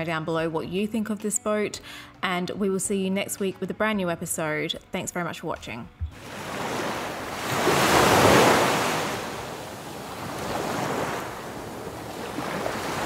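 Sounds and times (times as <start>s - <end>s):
ocean waves surging: 6.2s - 13.0s.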